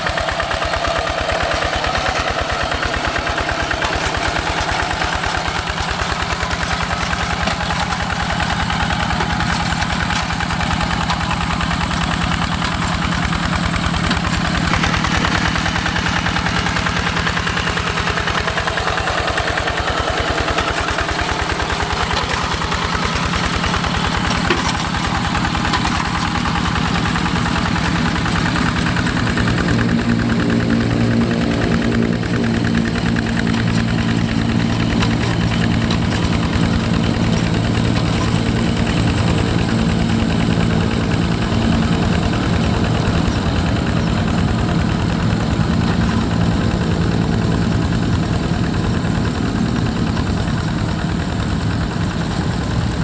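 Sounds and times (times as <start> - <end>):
diesel tractor engine running: 0.0 - 53.0.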